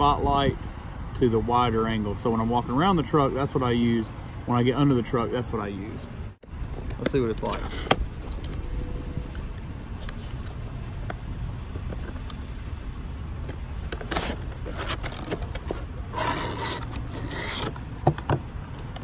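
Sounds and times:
cardboard packaging scraping: 13.5s - 18.2s.

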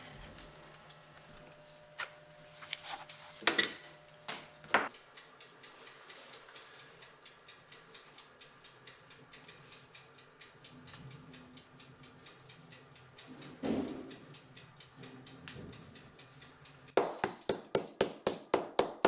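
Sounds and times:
faint rapid light ticks: 5.0s - 17.0s.

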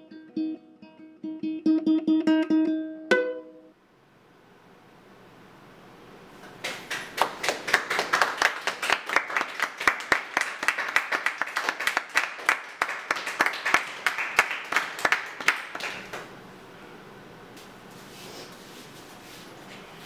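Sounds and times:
audience clapping: 6.4s - 16.3s.

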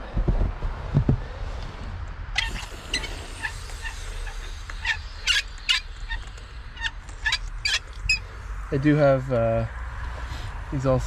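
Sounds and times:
hose tap handle squeaking: 2.4s - 8.2s.

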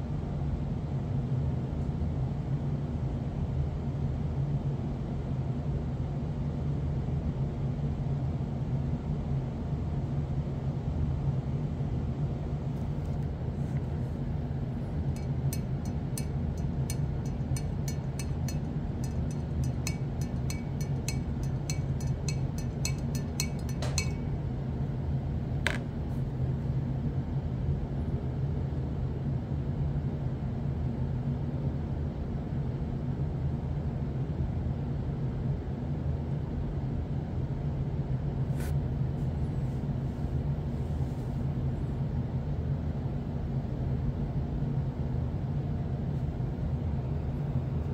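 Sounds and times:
steady low hum: 11.1s - 29.6s.

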